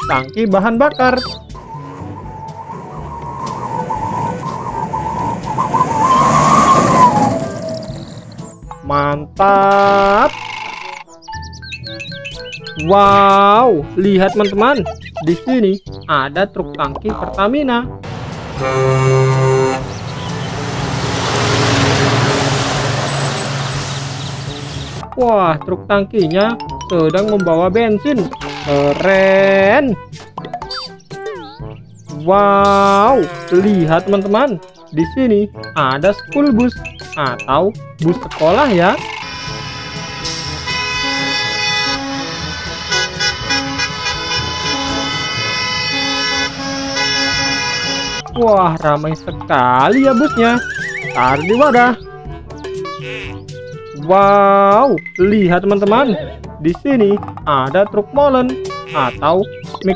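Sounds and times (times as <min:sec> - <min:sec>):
truck driving past: 0:01.6 - 0:08.7, 0:18.0 - 0:25.0, 0:39.2 - 0:48.2
truck air horn: 0:18.1 - 0:25.0, 0:32.7 - 0:34.2, 0:39.2 - 0:48.2, 0:52.8 - 0:53.4, 0:58.7 - 0:59.2.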